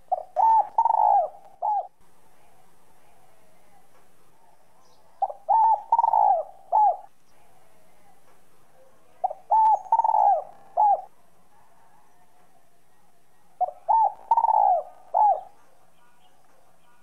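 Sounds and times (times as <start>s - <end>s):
dove cooing: 0.0s - 2.0s, 4.5s - 8.1s, 8.7s - 12.7s, 13.6s - 15.8s.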